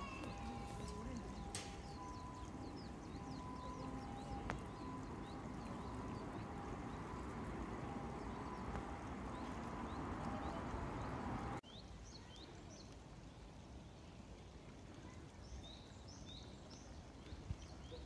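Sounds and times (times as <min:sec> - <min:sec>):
riverside ambience: 0:00.0 - 0:11.6
small birds chirping: 0:00.0 - 0:12.8
outdoor background noise: 0:00.0 - 0:18.0.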